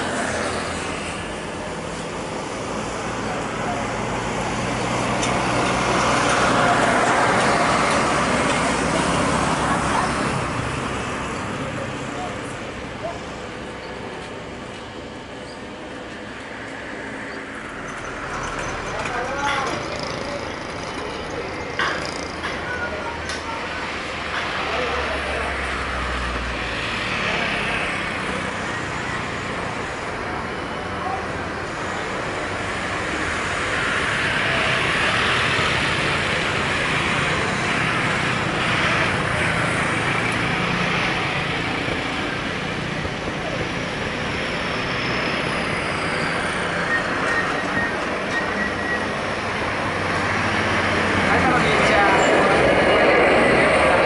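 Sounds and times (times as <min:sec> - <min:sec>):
jet airliner taking off: 0:23.8 - 0:54.0.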